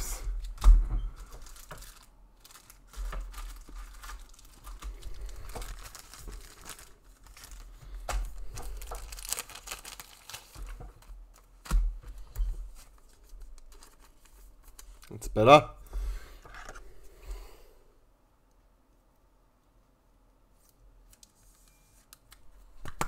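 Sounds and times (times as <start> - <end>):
plastic packaging crinkling: 1.2 - 11.7, 12.7 - 15.1.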